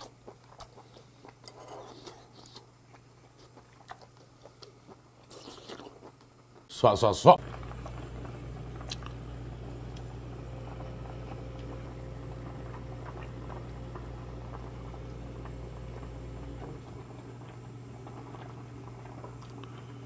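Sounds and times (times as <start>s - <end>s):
broth bubbling in a pot: 7.4s - 20.0s
low hum: 7.4s - 20.0s.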